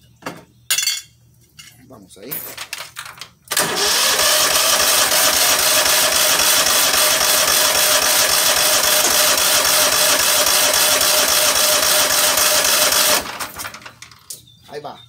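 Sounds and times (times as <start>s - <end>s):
electric starter cranking engine: 3.5s - 14.2s.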